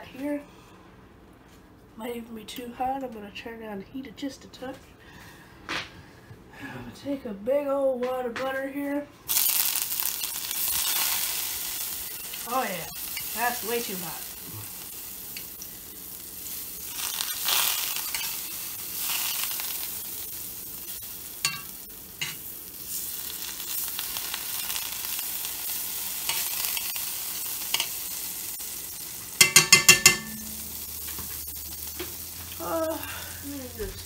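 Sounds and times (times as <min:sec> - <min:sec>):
butter sizzling in skillet: 0:09.3 - 0:33.9.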